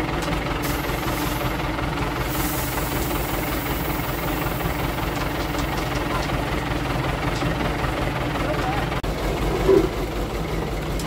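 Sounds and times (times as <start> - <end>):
diesel engine humming: 0.0 - 11.0
hiss: 0.6 - 1.6, 2.2 - 5.4.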